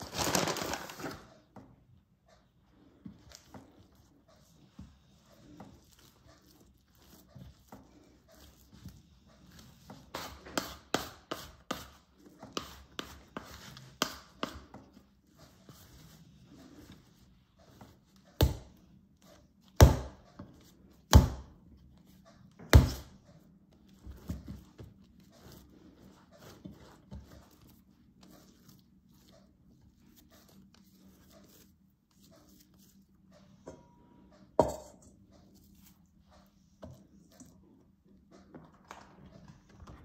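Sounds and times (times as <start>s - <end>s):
soft slaps and pats of dough: 17.8s - 25.2s.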